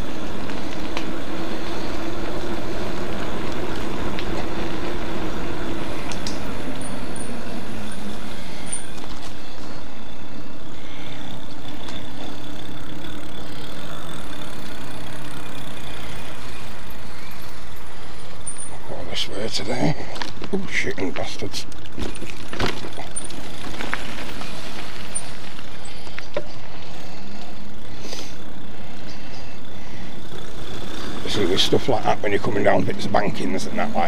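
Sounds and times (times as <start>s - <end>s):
electric motor hum: 0.0s - 18.9s, 21.7s - 34.0s
tyre noise: 0.0s - 19.1s.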